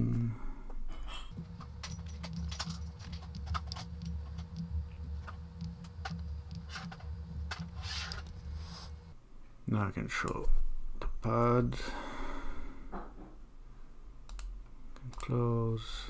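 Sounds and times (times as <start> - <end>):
steady low hum: 0.0 - 16.0
keyboard and mouse clicks: 1.3 - 8.4, 14.3 - 15.4.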